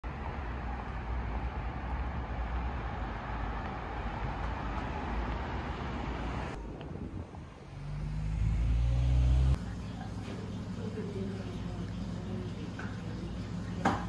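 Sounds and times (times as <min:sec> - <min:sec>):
passing cars rumbling: 0:00.1 - 0:10.0.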